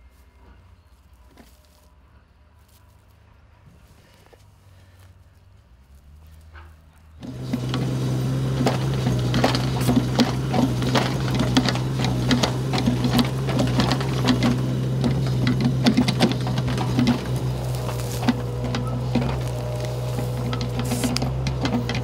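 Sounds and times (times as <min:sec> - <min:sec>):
excavator engine humming: 0:00.0 - 0:22.0
excavator bucket clanks and knocks: 0:07.2 - 0:22.0.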